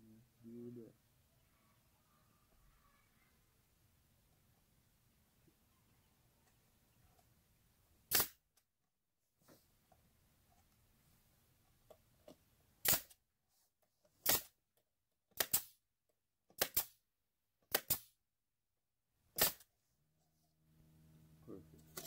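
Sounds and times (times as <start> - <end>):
nail gun shots into wood: 8.1 - 8.4, 12.8 - 13.2, 14.2 - 14.5, 15.4 - 15.8, 16.6 - 17.0, 17.7 - 18.1, 19.4 - 19.7.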